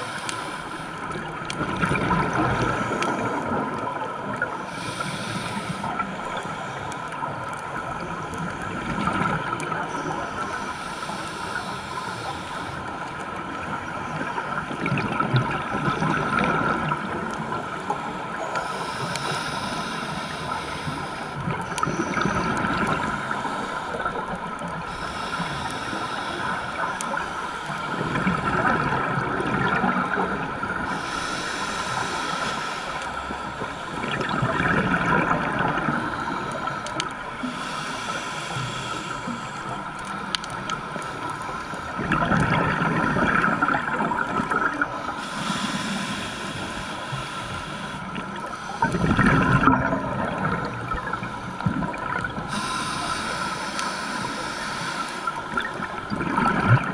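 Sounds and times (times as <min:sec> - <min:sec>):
underwater water noise: 0:00.0 - 0:56.9
exhaled bubbles rushing underwater: 0:01.0 - 0:04.6, 0:05.4 - 0:10.6, 0:13.2 - 0:18.6, 0:21.4 - 0:23.6, 0:27.8 - 0:32.2, 0:33.6 - 0:37.4, 0:38.8 - 0:45.1, 0:45.8 - 0:56.9
thin steady tone: 0:52.5 - 0:55.9.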